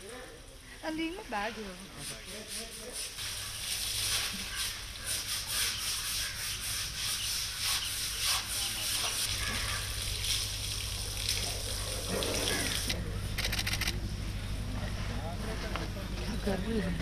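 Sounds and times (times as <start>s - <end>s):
water splashing from a hose: 2.0s - 13.0s
sponge scrubbing wet skin: 2.1s - 10.5s.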